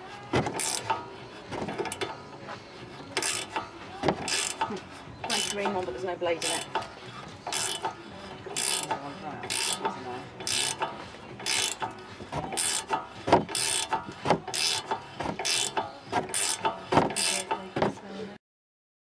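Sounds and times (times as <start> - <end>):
ratchet clicking: 0.5 - 2.3, 3.2 - 18.0.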